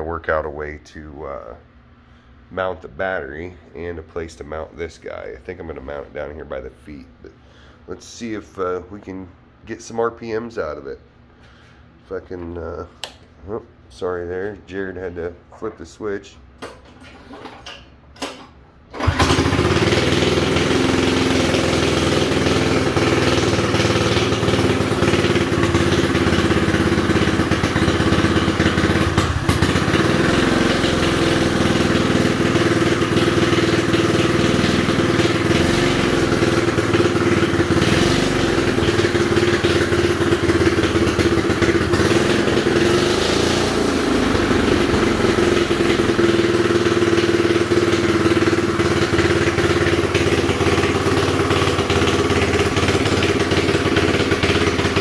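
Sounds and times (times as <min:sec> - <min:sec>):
go-kart engine idling: 0:18.9 - 0:55.0.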